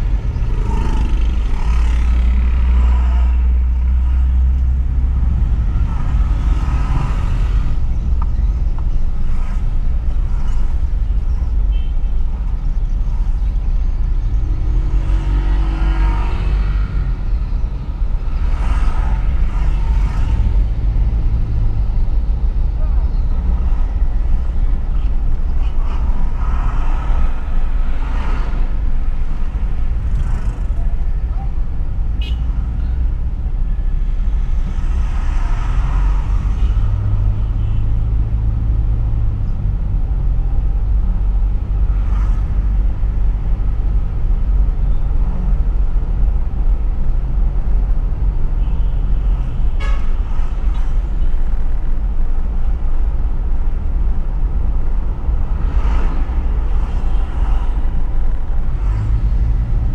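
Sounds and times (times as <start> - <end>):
car road and engine rumble: 0.0 - 59.9
low engine hum: 0.0 - 59.9
passing traffic: 0.0 - 59.9.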